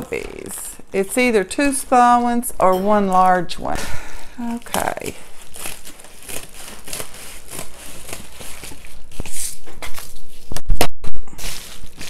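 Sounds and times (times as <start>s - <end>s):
paper envelope crinkling: 4.4s - 10.6s, 11.4s - 12.0s
scissors cutting padded mailer: 4.6s - 10.1s.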